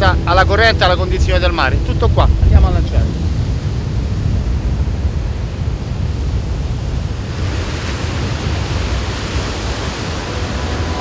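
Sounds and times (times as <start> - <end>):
wind buffeting microphone: 0.0 - 11.0
surf breaking on beach: 3.1 - 11.0.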